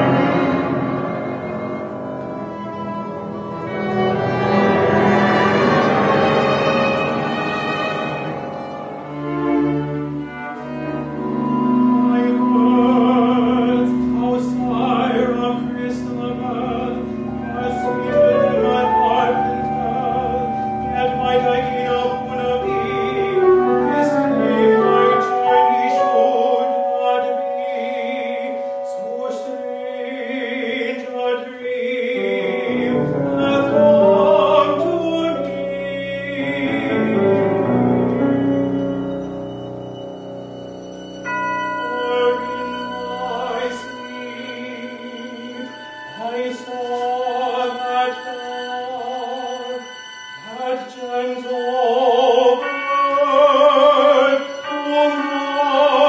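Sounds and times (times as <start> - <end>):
bowed strings sustained notes: 0.0 - 56.0
operatic singing voice: 12.0 - 38.1, 41.8 - 56.0.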